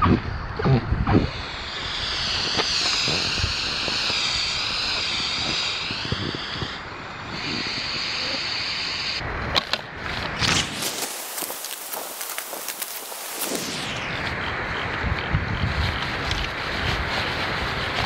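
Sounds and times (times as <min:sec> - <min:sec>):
air hissing out of inflatable boat: 0:01.2 - 0:09.2, 0:10.4 - 0:14.0
rustling of deflated boat: 0:10.1 - 0:13.7.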